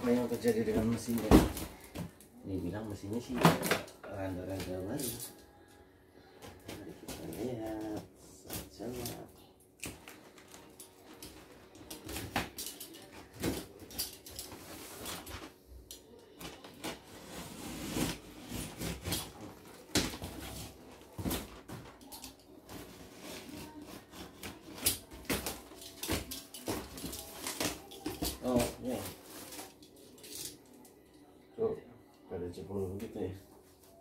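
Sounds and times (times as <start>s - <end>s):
objects clicking and clattering: 9.8s - 17.1s, 19.0s - 31.0s.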